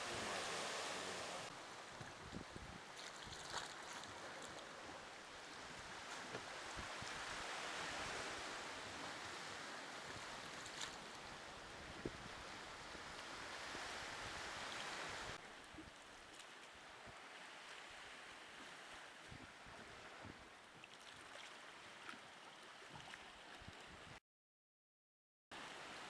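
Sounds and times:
water lapping around kayak: 0.0 - 24.2
small splashes: 3.0 - 4.8, 20.8 - 23.8.

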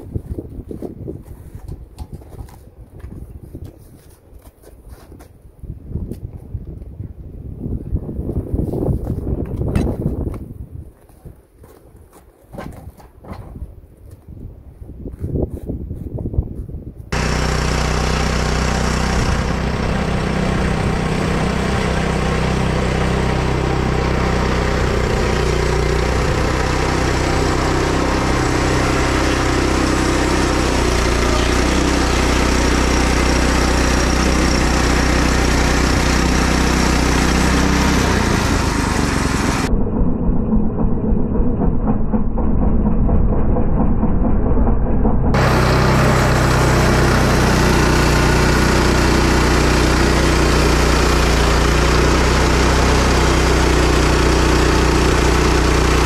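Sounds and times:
sawmill engine droning: 17.2 - 56.0.

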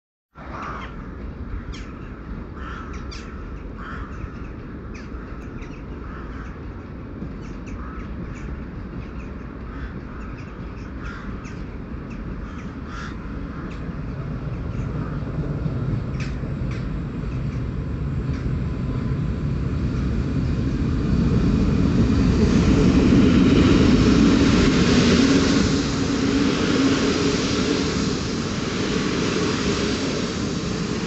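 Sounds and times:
train rumble: 0.3 - 31.0
crows cawing: 0.6 - 2.0, 2.6 - 6.6, 7.7 - 8.1, 9.7 - 11.6, 12.4 - 13.9.

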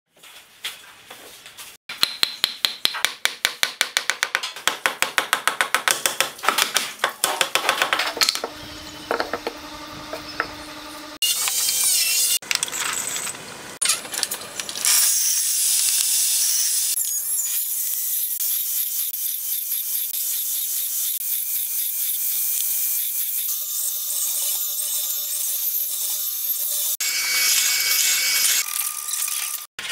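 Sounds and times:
table saw cutting wood: 7.8 - 13.2, 14.8 - 29.9.

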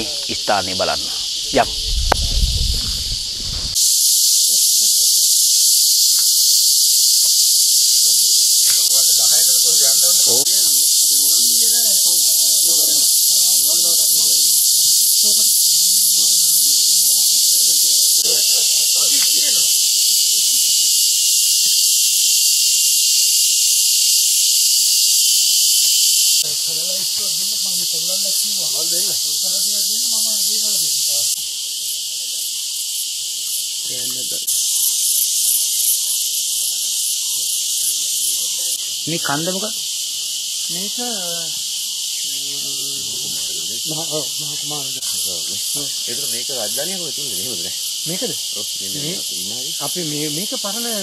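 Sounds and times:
person speaking: 0.0 - 1.8, 8.7 - 12.0
shrill insect chorus: 0.0 - 51.0.

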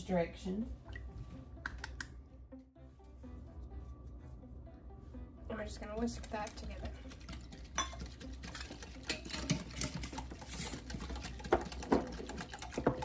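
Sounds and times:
whisk clinking on glass bowl: 6.2 - 13.0
wire whisk rattling against glass: 6.5 - 13.0.

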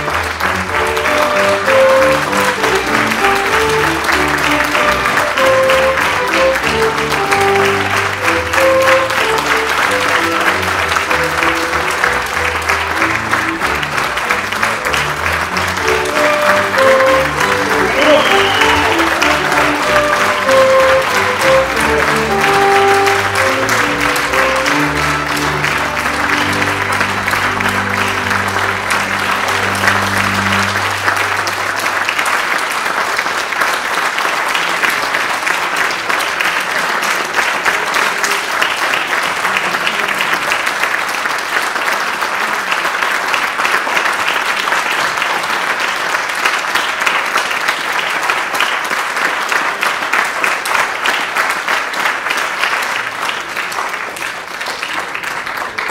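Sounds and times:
baroque orchestra playing: 0.0 - 33.8
audience applauding: 0.0 - 55.9.

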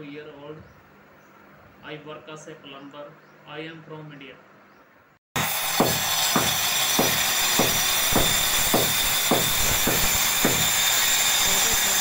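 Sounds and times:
angle grinder whining: 5.4 - 12.0
dull knock: 5.8 - 10.7.

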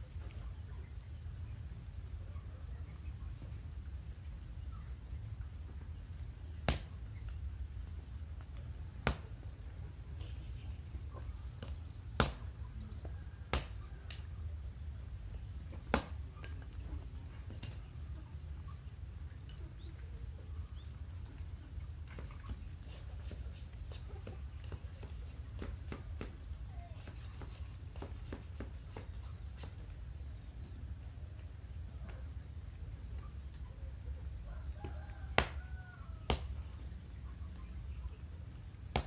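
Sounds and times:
machete chopping bamboo: 12.2 - 12.5, 13.5 - 13.8, 15.9 - 16.2.

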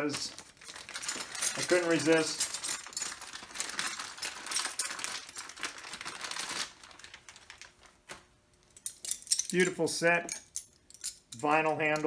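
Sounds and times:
wrapping crinkling and rustling: 0.0 - 8.7.

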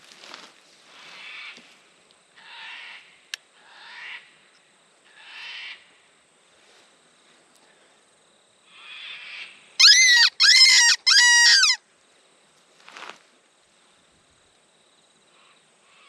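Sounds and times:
fox whistle blown: 9.8 - 11.8.

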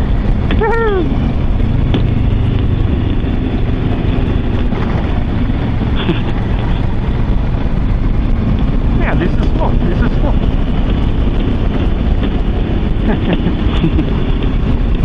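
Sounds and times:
motorcycle engine running: 0.0 - 15.0
wind and road noise: 0.0 - 15.0
voice exclamation: 0.5 - 1.3, 9.0 - 10.4.

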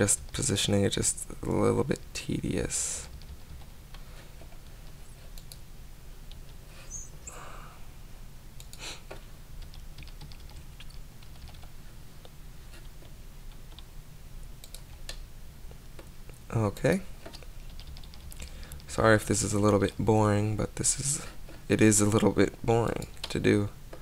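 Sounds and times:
steady low hum: 0.0 - 24.0
keyboard and mouse clicks: 3.2 - 5.6, 8.6 - 11.7, 14.6 - 15.2.

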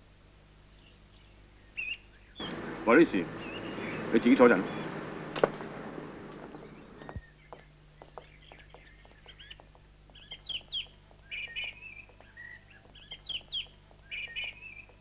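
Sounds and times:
birds chirping: 0.8 - 15.0
faint light taps: 4.8 - 10.2.

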